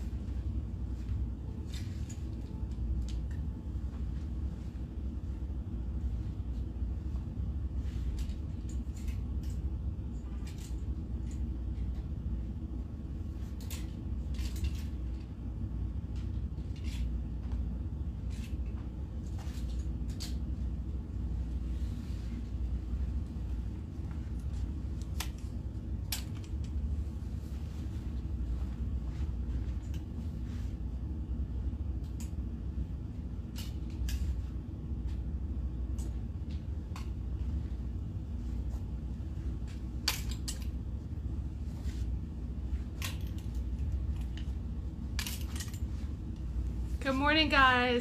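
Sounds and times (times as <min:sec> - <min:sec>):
steady low hum: 0:00.0 - 0:48.0
hangers clicking on metal racks: 0:08.0 - 0:12.1, 0:13.3 - 0:15.4, 0:16.1 - 0:17.6, 0:24.3 - 0:26.9, 0:33.4 - 0:34.5, 0:39.6 - 0:40.9, 0:42.8 - 0:46.4.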